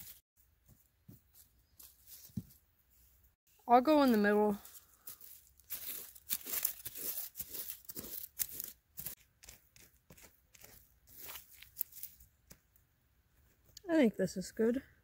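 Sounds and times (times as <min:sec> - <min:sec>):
toy scraping through soil and leaves: 0:03.9 - 0:12.3.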